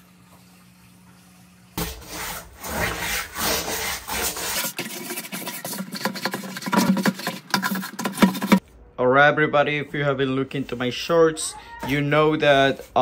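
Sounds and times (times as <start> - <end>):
scrub brush scraping tank: 1.8 - 8.6.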